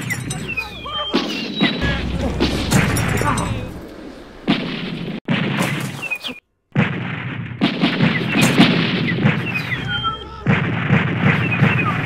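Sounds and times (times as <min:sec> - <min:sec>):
rapid gunshots: 0:06.8 - 0:12.0.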